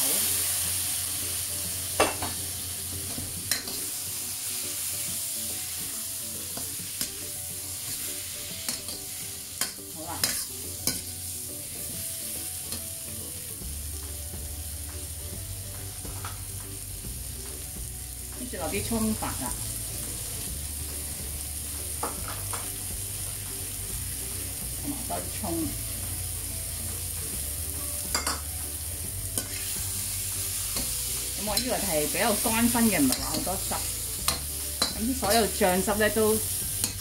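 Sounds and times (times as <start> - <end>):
food sizzling in a wok: 0.0 - 37.0
metal spatula scraping a wok: 7.9 - 11.8, 29.3 - 29.8.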